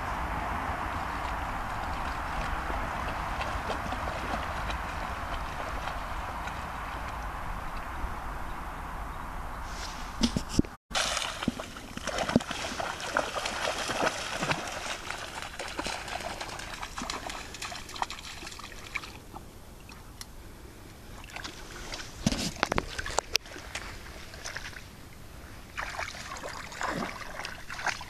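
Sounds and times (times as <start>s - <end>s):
dog splashing through water: 0.9s - 7.4s, 10.9s - 19.3s, 25.8s - 28.0s
water sloshing: 0.9s - 8.0s, 10.2s - 20.2s, 21.1s - 25.0s, 25.7s - 28.0s.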